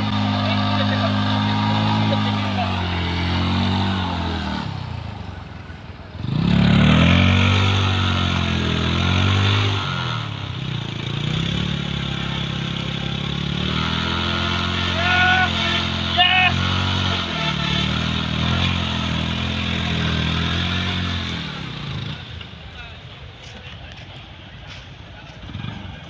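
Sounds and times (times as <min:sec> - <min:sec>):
motorcycle engine revving: 0:00.0 - 0:22.8, 0:25.2 - 0:26.0.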